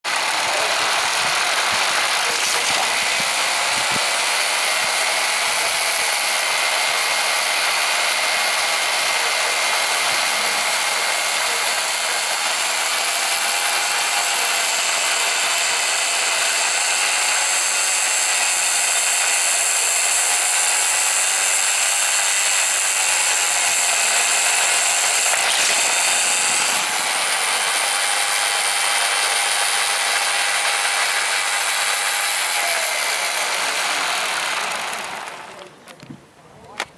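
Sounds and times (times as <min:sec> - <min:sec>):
mechanical lure whirring: 0:00.1 - 0:04.6, 0:22.8 - 0:32.0.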